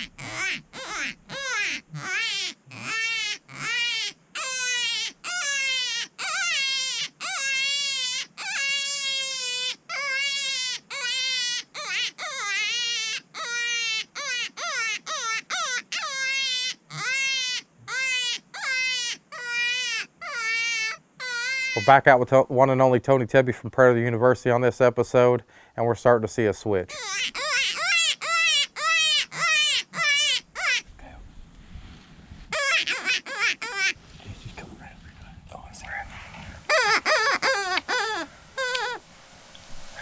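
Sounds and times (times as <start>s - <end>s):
electronic predator call wails: 36.7s - 39.0s.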